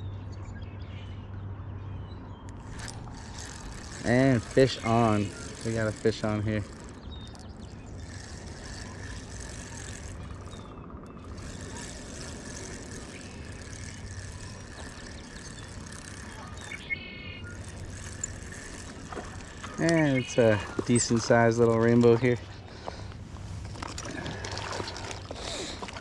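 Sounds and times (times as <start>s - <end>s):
fishing reel cranking: 2.5s - 26.0s.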